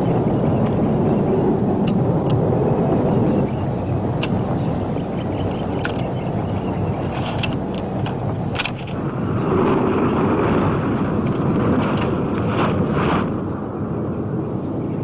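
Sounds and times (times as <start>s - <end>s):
rushing noise: 5.8s - 14.2s.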